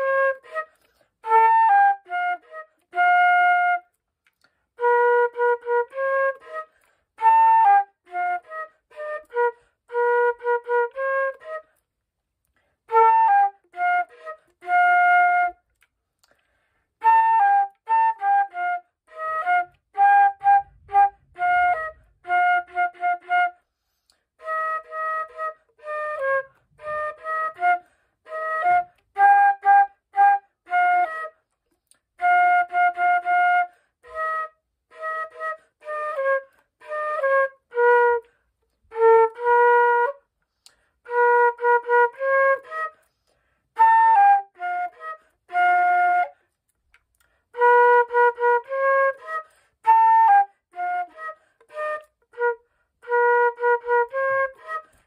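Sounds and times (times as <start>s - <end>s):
flute playing a melody: 0.0s - 55.0s.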